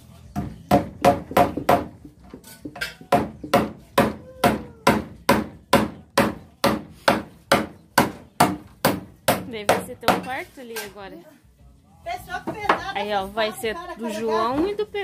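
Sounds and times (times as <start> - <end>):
claw hammer nailing wood: 3.1 - 10.2.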